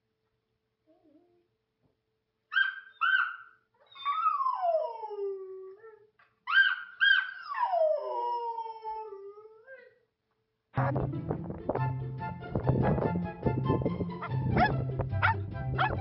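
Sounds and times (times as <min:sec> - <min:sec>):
dog howling: 0:03.0 - 0:09.9.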